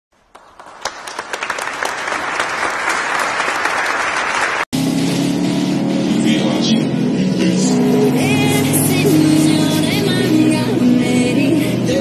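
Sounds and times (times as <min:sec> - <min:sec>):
applause: 0:00.2 - 0:04.7.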